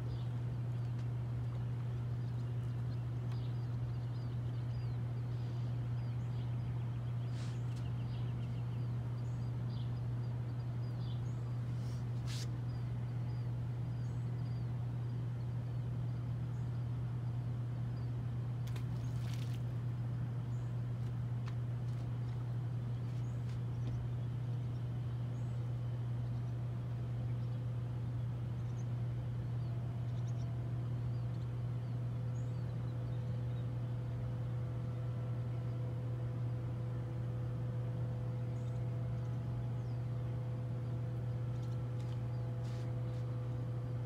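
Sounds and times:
low mechanical hum: 0:00.0 - 0:44.0.

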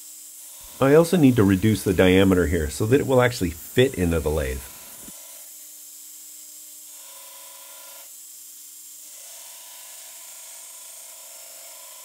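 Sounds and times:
belt grinder grinding steel: 0:00.5 - 0:05.5.

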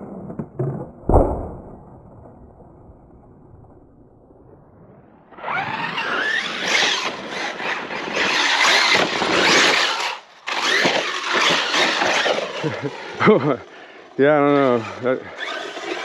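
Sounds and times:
electric motor whining: 0:05.4 - 0:13.4, 0:14.4 - 0:16.0.

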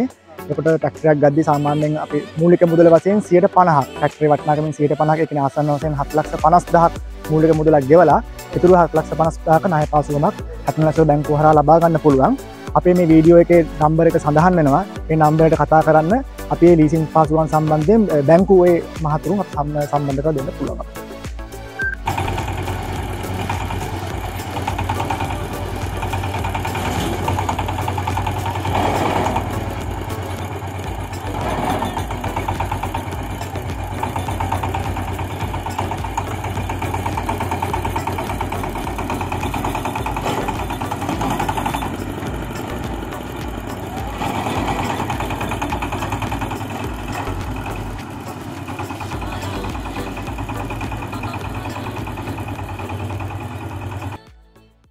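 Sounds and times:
diesel engine running: 0:00.0 - 0:54.3.

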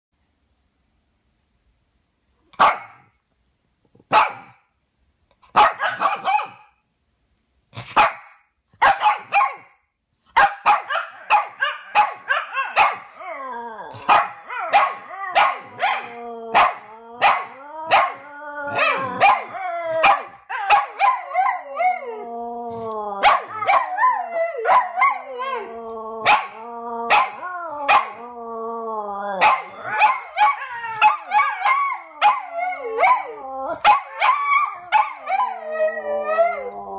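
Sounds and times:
dogs howling: 0:11.0 - 0:36.9
small dogs yapping: 0:14.0 - 0:21.6.

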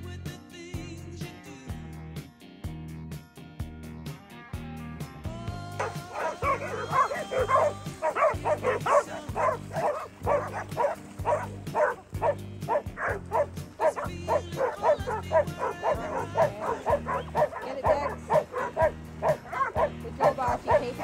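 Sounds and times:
background music: 0:00.0 - 0:21.0
dogs barking: 0:05.8 - 0:21.0.

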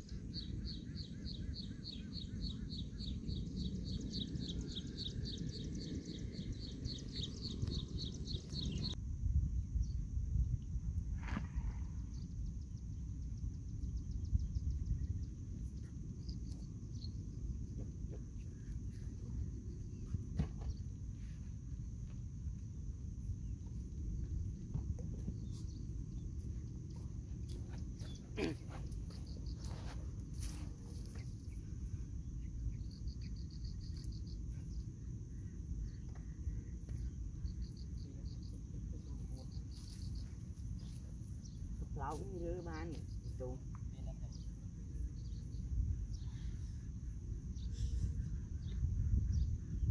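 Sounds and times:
insects droning: 0:00.0 - 0:49.9
wind on microphone: 0:03.4 - 0:15.7, 0:45.2 - 0:49.9.

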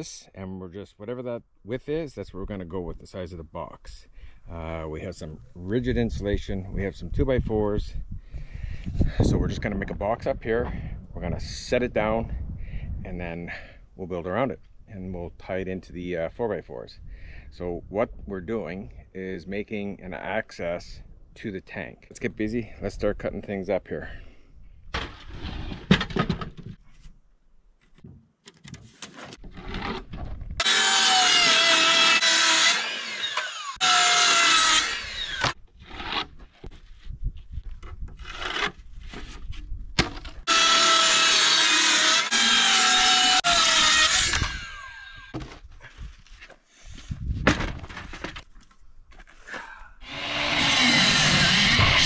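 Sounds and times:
circular saw cutting plywood: 0:29.4 - 0:36.4, 0:40.4 - 0:45.3, 0:50.0 - 0:52.0.

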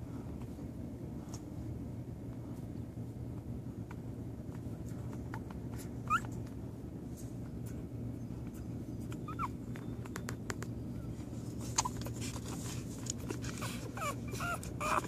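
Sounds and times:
steady low hum: 0:00.0 - 0:15.0
puppies squeaking: 0:05.3 - 0:06.6, 0:08.1 - 0:15.0.

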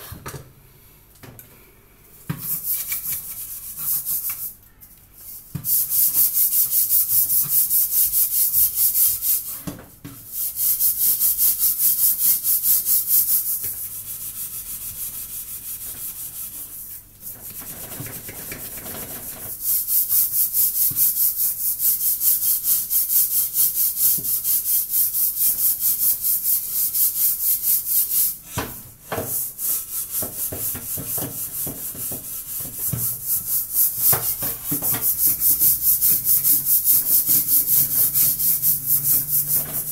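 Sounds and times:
scrubbing a steel pot: 0:02.4 - 0:04.6, 0:10.3 - 0:28.4, 0:29.2 - 0:39.9.

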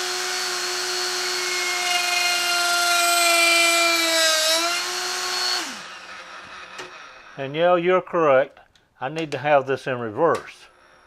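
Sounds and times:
die grinder whining: 0:00.0 - 0:07.6.

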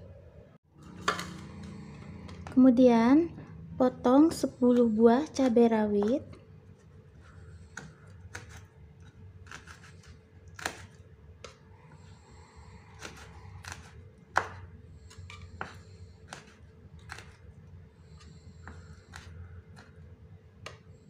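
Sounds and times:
knife chopping on wooden board: 0:07.7 - 0:08.7, 0:09.4 - 0:11.6, 0:12.9 - 0:17.4, 0:18.1 - 0:20.0.

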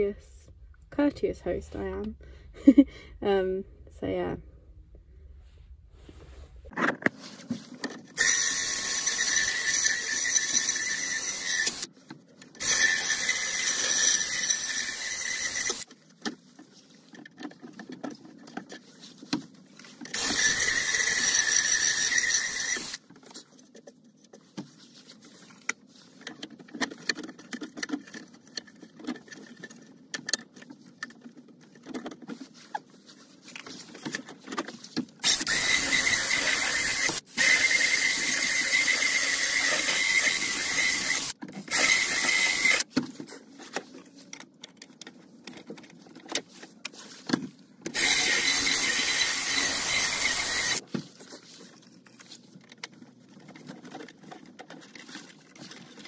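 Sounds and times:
cordless drill whining: 0:08.2 - 0:11.9, 0:12.6 - 0:15.8, 0:20.2 - 0:23.0, 0:35.2 - 0:42.9, 0:47.9 - 0:50.8.

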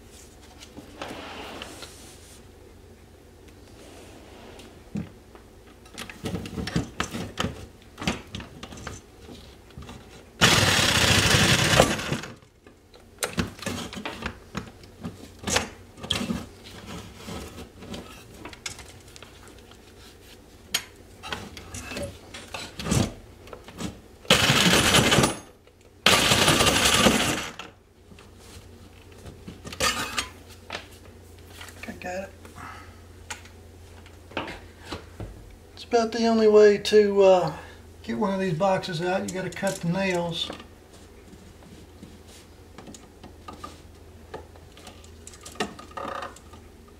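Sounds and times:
cordless power saw cutting: 0:10.4 - 0:12.4.

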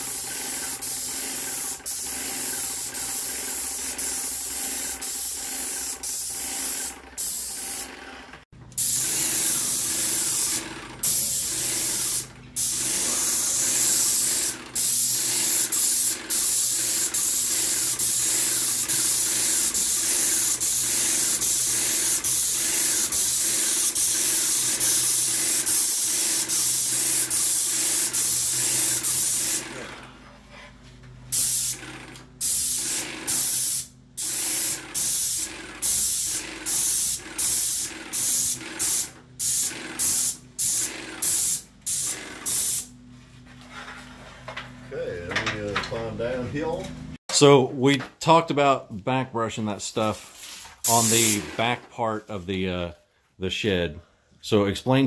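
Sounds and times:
paint sprayer hissing: 0:00.0 - 0:29.9, 0:31.3 - 0:43.0, 0:50.0 - 0:51.8.

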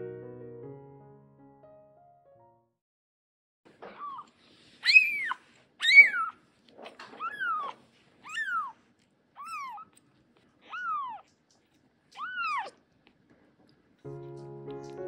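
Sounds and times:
kitten mewing: 0:03.8 - 0:08.8, 0:09.4 - 0:10.0, 0:10.6 - 0:11.3, 0:12.1 - 0:12.8.

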